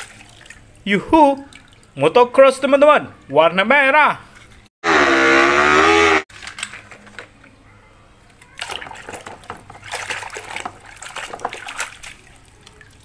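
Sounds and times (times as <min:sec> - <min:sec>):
water splashing in tub: 0:00.0 - 0:02.0, 0:08.5 - 0:13.0
racing motorcycle engine: 0:04.8 - 0:06.3.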